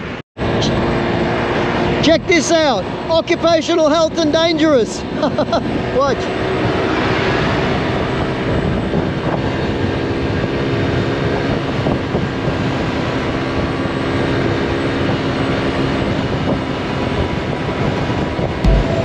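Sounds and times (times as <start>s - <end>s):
wind and tyre rush: 0.0s - 19.0s
scooter engine drone: 5.0s - 19.0s.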